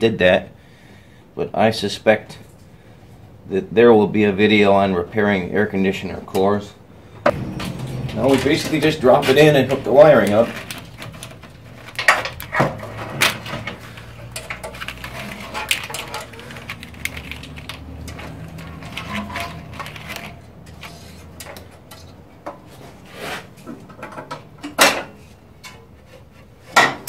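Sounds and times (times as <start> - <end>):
metal parts knocking and clicking: 7.3 - 22.6.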